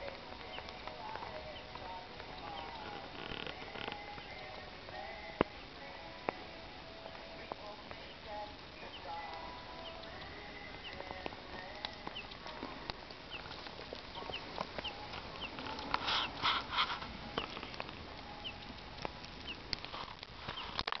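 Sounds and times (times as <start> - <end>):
wood fire crackling: 0.0 - 21.0.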